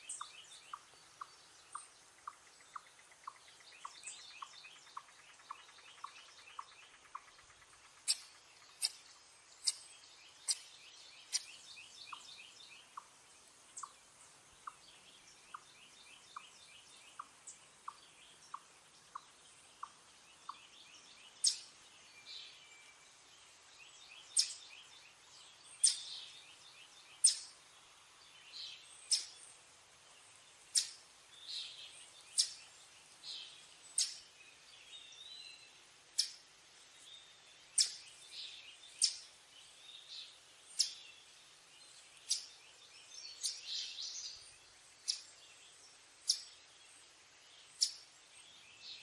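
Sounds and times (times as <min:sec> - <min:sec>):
chipmunk chip calls: 0:00.0 - 0:14.0, 0:14.6 - 0:20.7, 0:21.4 - 0:21.7, 0:24.3 - 0:24.7, 0:25.8 - 0:26.5, 0:27.2 - 0:27.6, 0:28.7 - 0:29.4, 0:30.7 - 0:31.0, 0:31.6 - 0:32.8, 0:33.4 - 0:34.2, 0:36.1 - 0:36.4, 0:37.8 - 0:38.0, 0:39.0 - 0:39.3, 0:40.7 - 0:41.0, 0:42.2 - 0:42.6, 0:43.3 - 0:44.4, 0:45.0 - 0:45.4, 0:46.2 - 0:46.5, 0:47.8 - 0:48.1.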